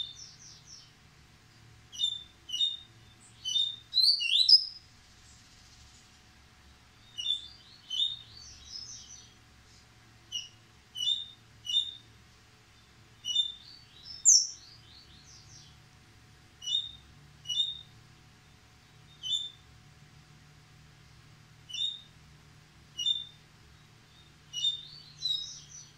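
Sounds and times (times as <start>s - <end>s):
bird singing high chirps: 0.0s - 0.9s, 1.9s - 4.8s, 7.0s - 9.4s, 10.3s - 12.0s, 12.8s - 15.8s, 16.6s - 17.9s, 19.1s - 19.6s, 21.7s - 22.1s, 23.0s - 25.9s.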